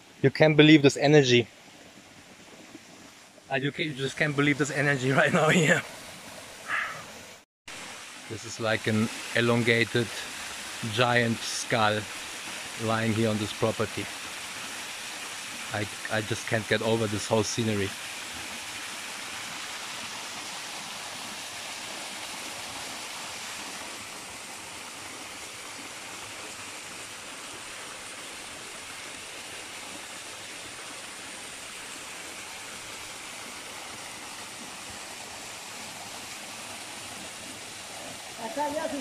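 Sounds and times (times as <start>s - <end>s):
waterfall pouring onto rock: 8.0s - 23.8s.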